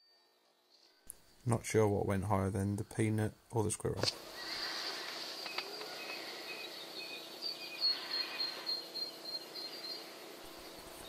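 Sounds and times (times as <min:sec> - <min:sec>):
faint steady hum: 0:00.0 - 0:11.0
small birds chirping: 0:04.3 - 0:11.0.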